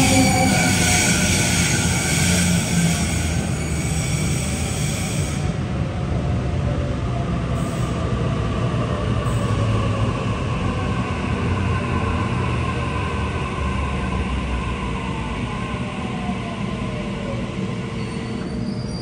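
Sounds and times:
train wheels rumbling: 0.0s - 6.0s
faint train whine: 0.0s - 19.0s.

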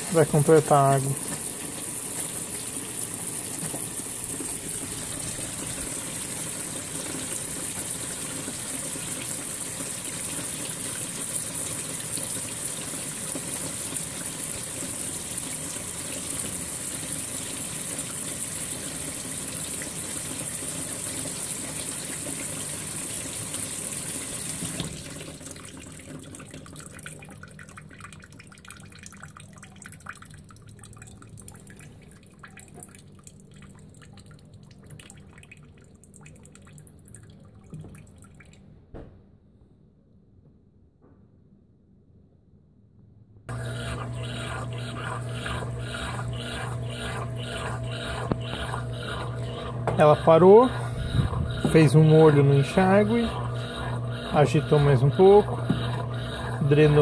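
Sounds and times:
water rushing into washing machine: 0.0s - 33.0s, 43.5s - 57.0s
faint water drips: 25.6s - 38.7s.

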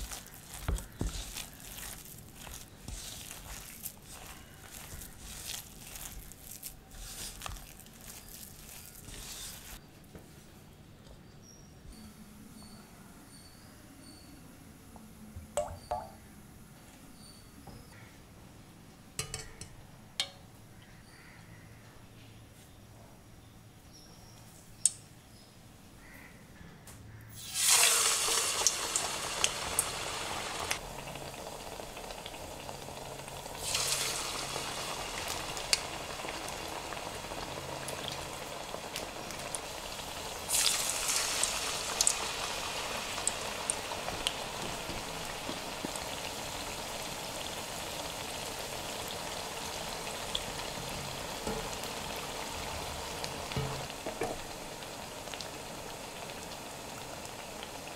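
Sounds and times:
food deep-frying in hot oil: 0.0s - 9.8s, 27.4s - 57.9s
oil popping: 0.0s - 9.8s, 30.6s - 56.5s.

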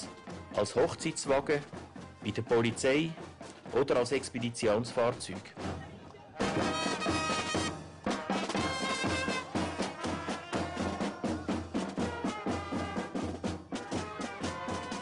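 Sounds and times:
music with steady beat: 0.0s - 15.0s.

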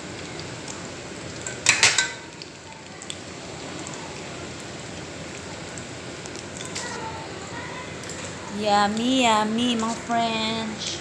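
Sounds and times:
oil sizzling and bubbling: 0.0s - 11.0s.

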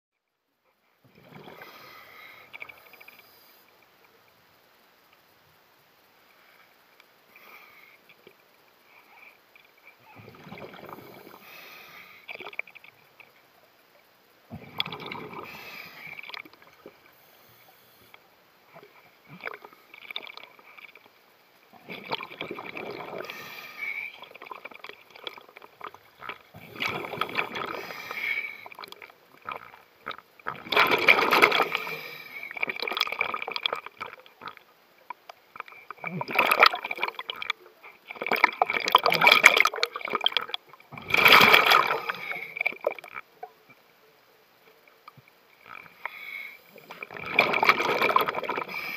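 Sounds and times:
bubbling regulator exhalations: 1.0s - 2.9s, 10.1s - 11.6s, 14.5s - 16.9s, 21.8s - 34.6s, 35.5s - 43.3s, 45.6s - 48.9s.

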